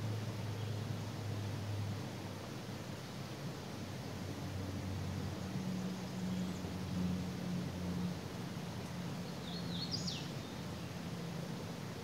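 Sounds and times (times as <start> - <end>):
flowing creek: 0.0 - 12.0
songbird chirping: 9.3 - 10.6.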